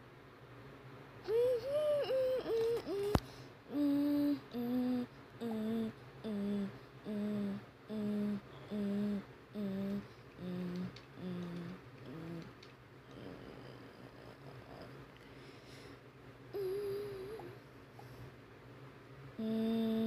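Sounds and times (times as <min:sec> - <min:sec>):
person humming descending notes: 0:01.2 - 0:12.5, 0:16.6 - 0:17.6, 0:19.4 - 0:20.0.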